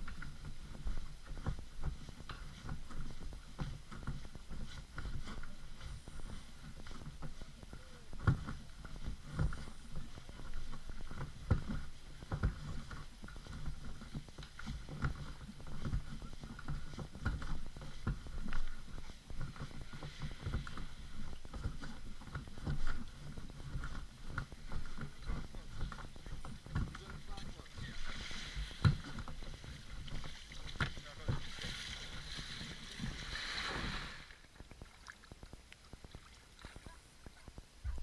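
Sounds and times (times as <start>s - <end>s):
kayak hull scraping over sand: 0.0s - 36.6s
footsteps: 13.6s - 38.0s.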